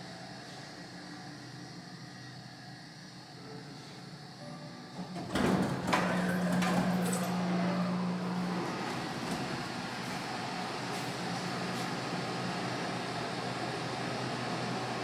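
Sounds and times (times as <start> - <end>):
elevator door hum: 0.0 - 15.0
elevator doors sliding open: 4.5 - 10.4.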